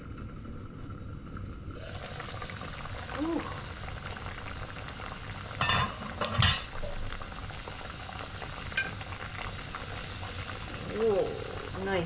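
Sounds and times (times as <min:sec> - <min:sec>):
meat bubbling and sizzling: 0:00.0 - 0:12.0
cookware clinking: 0:05.6 - 0:06.8.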